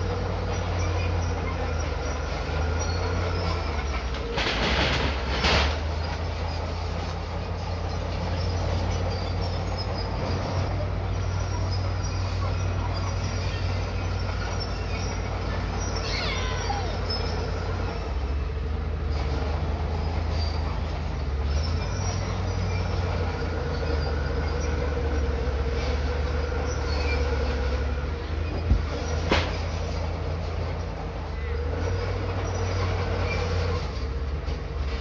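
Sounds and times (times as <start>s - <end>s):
bulldozer diesel engine running: 0.0s - 35.0s
metallic squeal falling in pitch: 11.3s - 18.2s.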